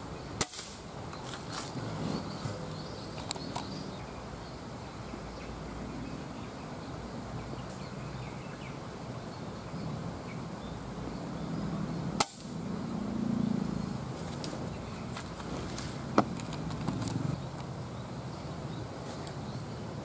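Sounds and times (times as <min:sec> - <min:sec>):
steady background noise: 0:00.0 - 0:20.0.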